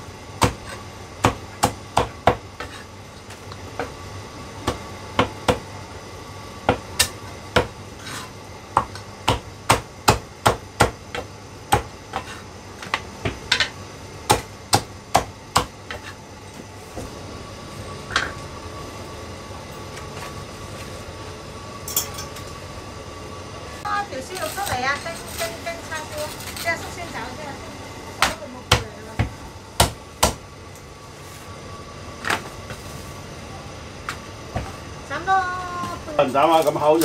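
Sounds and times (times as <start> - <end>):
cleaver chopping on wooden block: 8.8 - 12.3, 14.3 - 16.1, 28.2 - 30.4.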